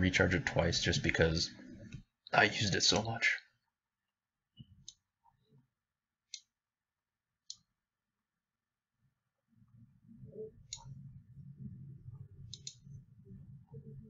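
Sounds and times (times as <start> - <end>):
faint low rumble: 9.6 - 14.0
computer mouse clicks: 10.7 - 11.0, 12.5 - 12.8.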